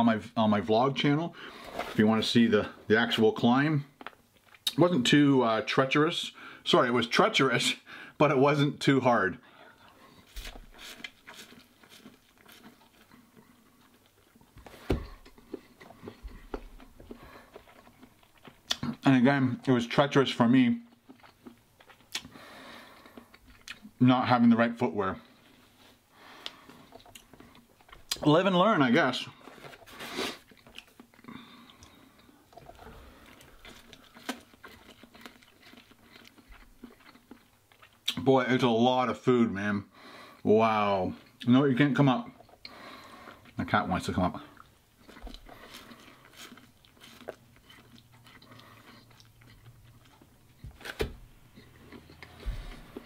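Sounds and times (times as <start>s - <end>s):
person chewing noodles: 9.6s - 19.1s, 20.8s - 24.0s, 25.2s - 28.2s, 29.3s - 38.2s, 42.3s - 43.6s, 44.3s - 53.0s.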